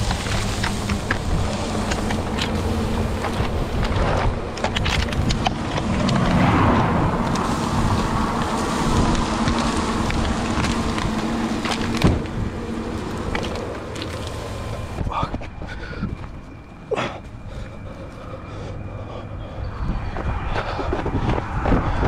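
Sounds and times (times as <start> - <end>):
car engine running: 0.0 - 15.1.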